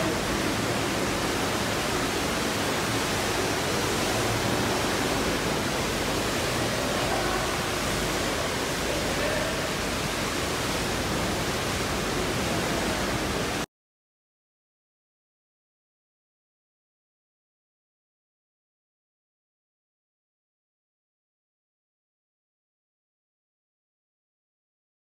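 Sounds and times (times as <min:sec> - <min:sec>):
water rushing in aquarium tank: 0:00.0 - 0:13.7.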